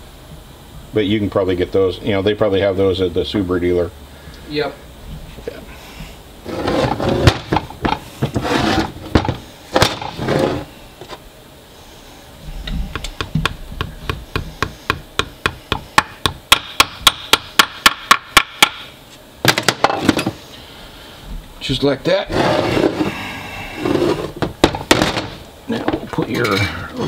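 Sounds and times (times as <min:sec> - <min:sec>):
rubbing and handling noise: 0:05.2 - 0:15.2, 0:22.2 - 0:25.4
hammer tapping metal: 0:12.9 - 0:18.9.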